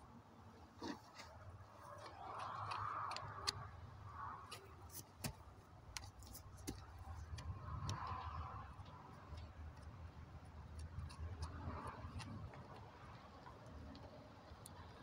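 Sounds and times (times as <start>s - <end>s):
hoof pick scraping hoof: 0.7s - 9.9s.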